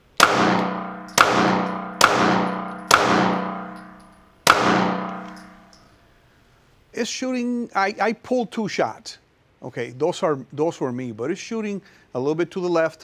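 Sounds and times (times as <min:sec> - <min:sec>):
pistol shots echoing: 0:00.2 - 0:05.7.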